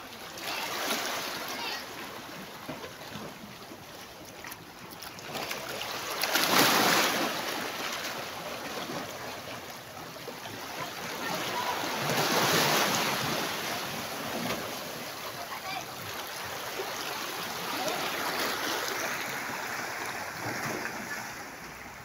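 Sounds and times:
waves washing onto pebble shore: 5.9 - 8.2.

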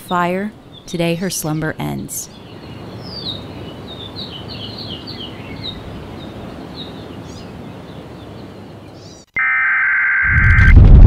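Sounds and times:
birds chirping: 0.0 - 9.3
steady outdoor hiss: 0.0 - 9.3
steady high-pitched tone: 9.4 - 11.0
deep rumble: 10.3 - 11.0.

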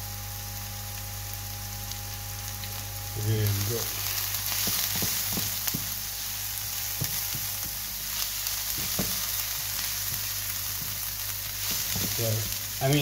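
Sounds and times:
onions sizzling in oil: 0.0 - 13.0
spatula scraping a pan: 4.1 - 12.8.

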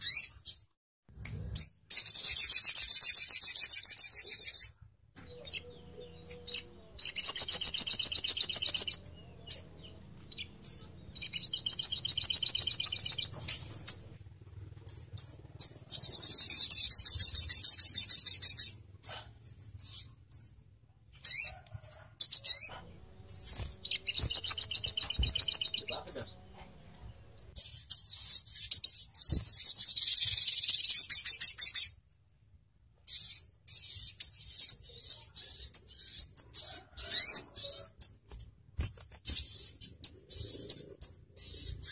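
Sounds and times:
bird trilling: 1.9 - 14.1, 14.8 - 20.5, 22.2 - 26.3
bird sharp chips: 23.3 - 26.2.

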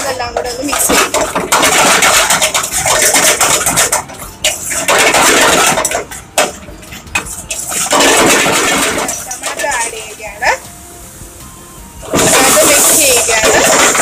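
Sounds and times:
oil sizzling: 6.0 - 14.0.

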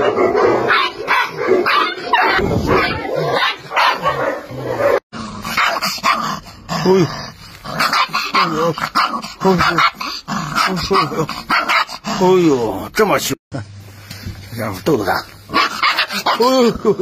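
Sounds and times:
puppy barking: 0.0 - 6.4, 7.8 - 12.0, 15.5 - 16.6.

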